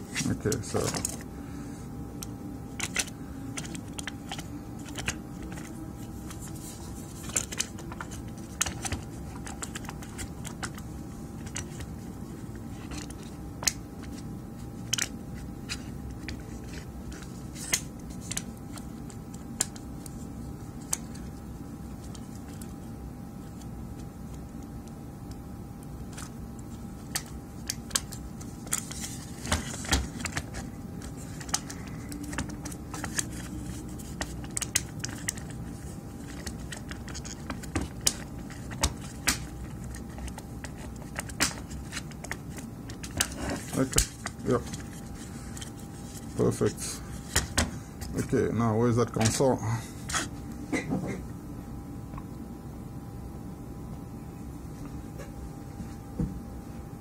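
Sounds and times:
steady low hum: 0:00.0 - 0:57.0
plastic parts clicking and clattering: 0:00.2 - 0:01.2.

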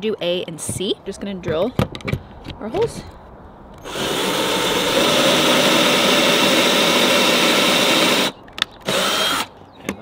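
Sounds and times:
cordless drill boring into plywood: 0:03.8 - 0:09.5.

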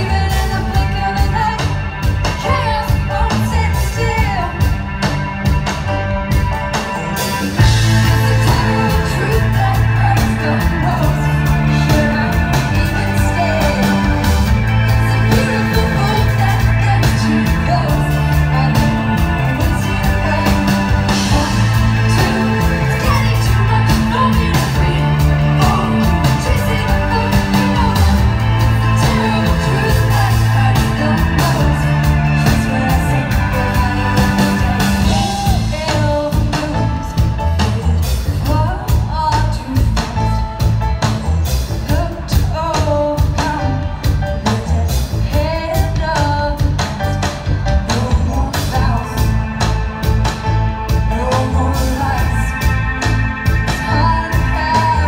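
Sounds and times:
woman singing: 0:00.0 - 0:04.8, 0:07.6 - 0:41.2, 0:41.8 - 0:49.7, 0:50.9 - 0:55.0
bass line: 0:00.0 - 0:55.0
drum kit: 0:00.0 - 0:55.0
synthesizer keyboards: 0:48.5 - 0:55.0.

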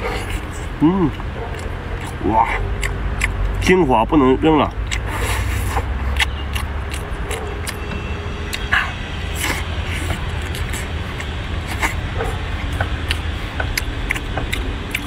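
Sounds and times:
person eating with mouth sounds: 0:00.0 - 0:03.6, 0:04.7 - 0:07.8, 0:08.5 - 0:15.0
wet mouth clicks and smacks: 0:01.1 - 0:03.6, 0:04.7 - 0:07.8, 0:12.7 - 0:15.0.

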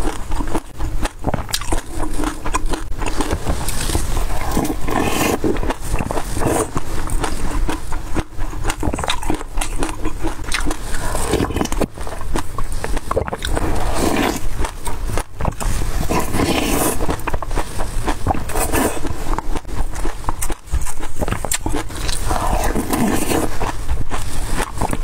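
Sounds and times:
wet chewing: 0:00.0 - 0:25.0.

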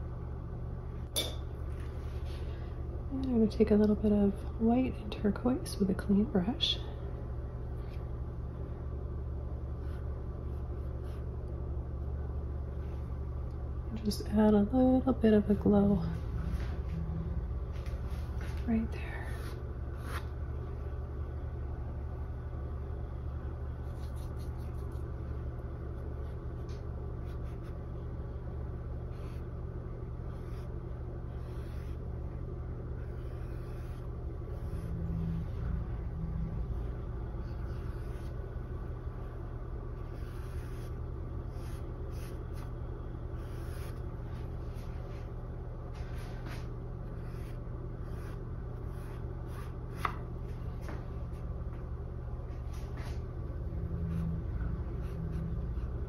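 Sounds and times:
steady low hum: 0:00.0 - 0:56.0
paintbrush strokes on canvas: 0:40.0 - 0:51.0.

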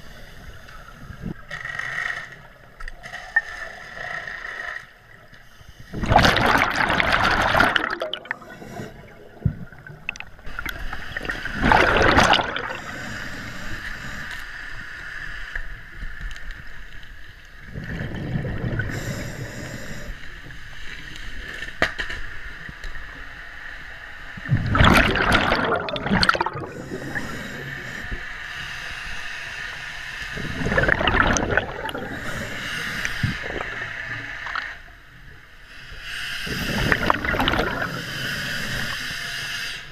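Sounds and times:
exhaled bubbles rushing: 0:05.9 - 0:12.9, 0:17.7 - 0:19.0, 0:24.4 - 0:27.6, 0:30.4 - 0:32.6, 0:33.2 - 0:33.8, 0:36.5 - 0:38.0.

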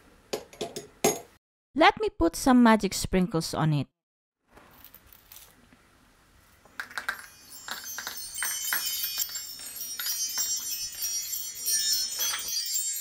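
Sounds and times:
shimmer of high bell tones: 0:07.2 - 0:13.0.

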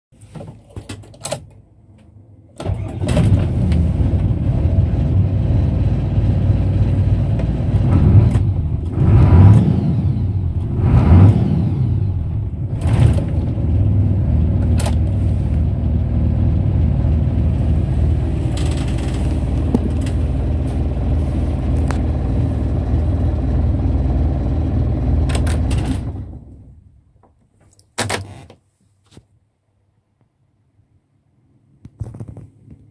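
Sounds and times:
truck diesel engine idling: 0:13.7 - 0:26.5.

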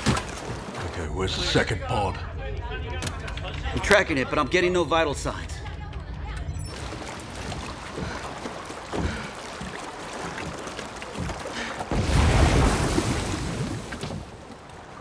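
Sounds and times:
wind: 0:05.7 - 0:15.0
ocean waves: 0:06.7 - 0:15.0.

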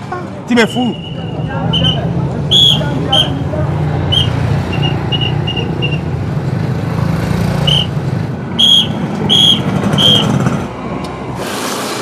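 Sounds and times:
motor traffic rumble: 0:00.0 - 0:12.0
police whistle blasts: 0:00.8 - 0:03.4, 0:04.1 - 0:06.1, 0:07.6 - 0:07.9, 0:08.6 - 0:10.4.

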